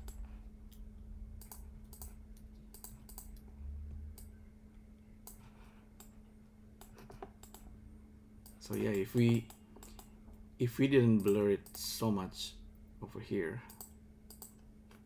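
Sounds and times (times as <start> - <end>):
keyboard and mouse clicks: 0.0 - 3.5, 6.8 - 7.7, 8.4 - 10.1, 11.1 - 11.8, 13.7 - 15.0
faint electrical hum: 0.0 - 15.0.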